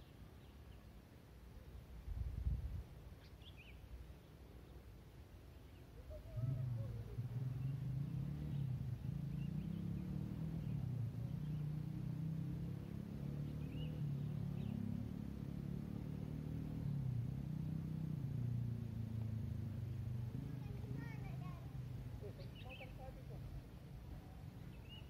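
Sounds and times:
faint bird chirps: 5.5s - 15.6s, 24.1s - 25.0s
vehicle engine humming: 6.1s - 25.0s.

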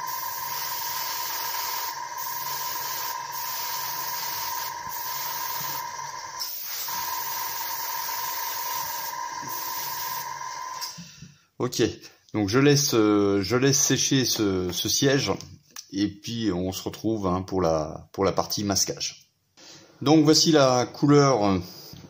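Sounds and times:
airbrush hissing with whistle: 0.0s - 11.0s.

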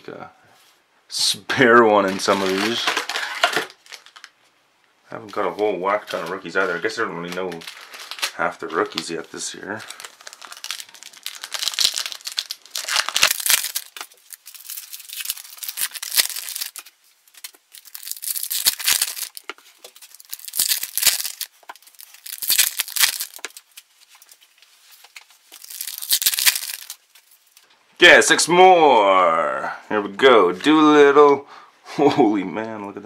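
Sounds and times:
foil wrappers crinkling and tearing: 1.9s - 4.4s, 5.3s - 27.6s
cards handled: 10.0s - 27.6s.

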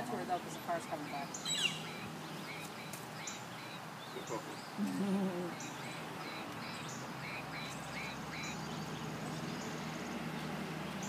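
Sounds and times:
songbirds chirping: 0.0s - 11.0s.

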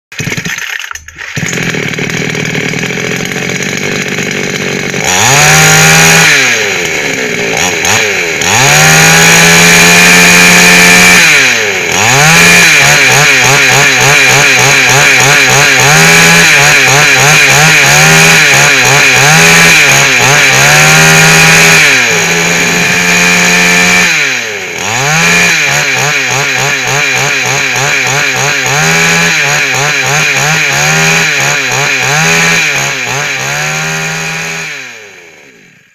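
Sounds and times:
chainsaw engine idling and revving: 0.1s - 35.9s.

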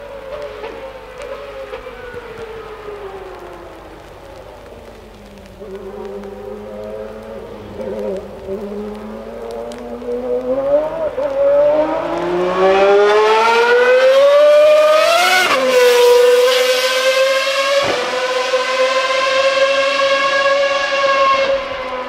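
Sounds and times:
race car engine accelerating: 6.0s - 22.0s.

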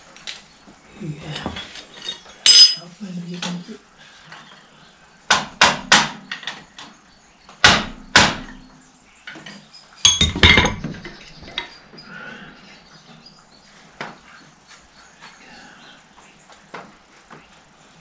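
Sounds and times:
metal tools knocking and clanking: 1.4s - 2.8s, 9.3s - 11.8s
metal clatter with ringing: 1.9s - 2.8s, 9.5s - 11.7s.

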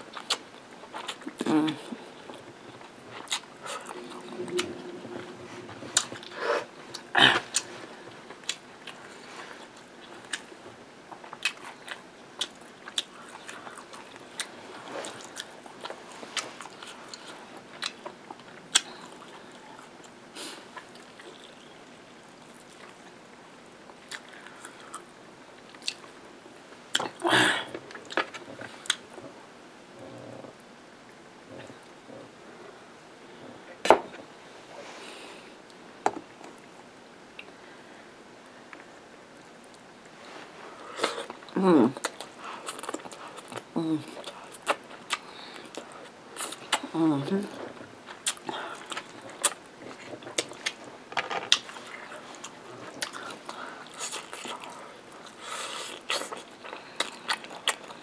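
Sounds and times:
person chewing food: 0.1s - 23.2s, 24.0s - 26.1s, 40.8s - 46.9s, 47.5s - 58.0s.

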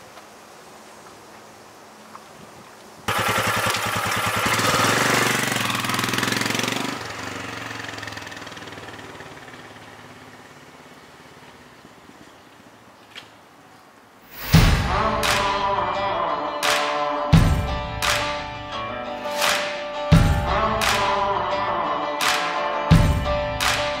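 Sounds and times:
motorcycle engine running: 3.1s - 11.1s.

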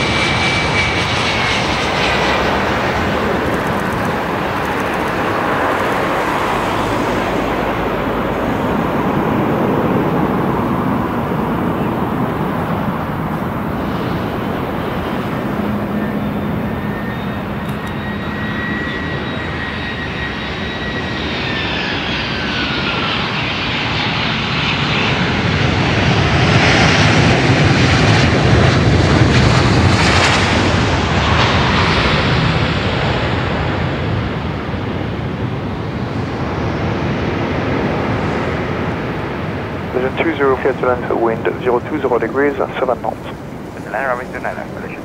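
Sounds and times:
thrust reverser rush: 0.0s - 19.1s
jet engine whine: 0.0s - 45.0s.

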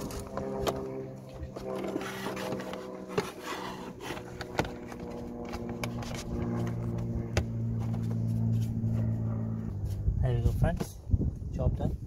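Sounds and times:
steady low hum: 0.0s - 12.0s
plastic scraping against metal: 1.5s - 6.8s.

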